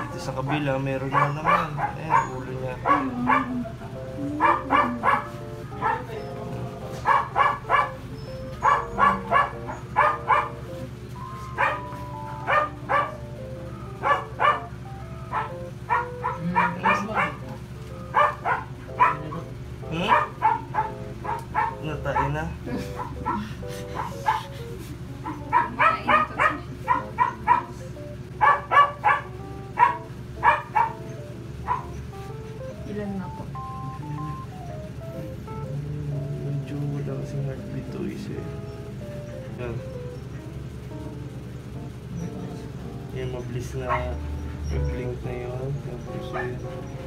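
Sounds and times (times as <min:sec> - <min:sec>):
background music with held notes: 0:00.0 - 0:47.0
dog barking: 0:00.5 - 0:03.7, 0:04.4 - 0:06.2, 0:07.0 - 0:08.0, 0:08.6 - 0:10.6, 0:11.6 - 0:13.2, 0:14.0 - 0:14.7, 0:15.3 - 0:17.5, 0:18.1 - 0:24.5, 0:25.2 - 0:27.8, 0:28.4 - 0:32.0, 0:43.8 - 0:45.0, 0:46.2 - 0:47.0.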